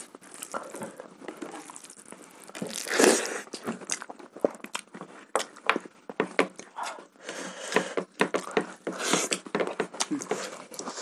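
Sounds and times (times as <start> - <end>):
chewing: 0.0 - 5.7.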